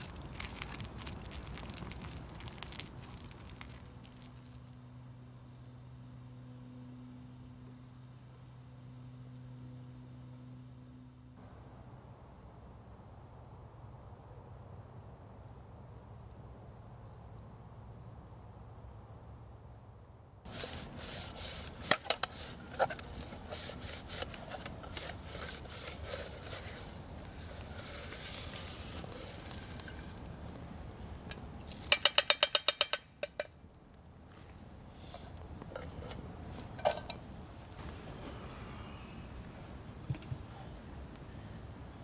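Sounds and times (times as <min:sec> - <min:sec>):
pine needles crackling: 0:00.0 - 0:11.4, 0:20.5 - 0:42.0.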